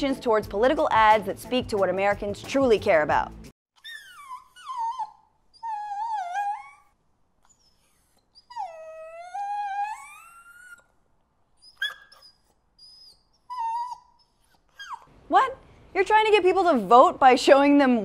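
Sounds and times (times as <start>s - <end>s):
puppies whimpering: 3.8s - 10.9s, 11.6s - 15.1s
puppy yelps: 3.8s - 11.0s, 11.6s - 15.1s.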